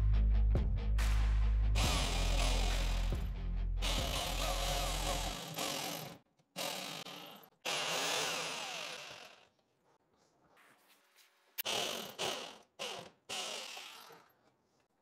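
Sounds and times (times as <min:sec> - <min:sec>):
jigsaw cutting wood: 0:01.8 - 0:03.2, 0:03.8 - 0:09.5, 0:11.6 - 0:14.3.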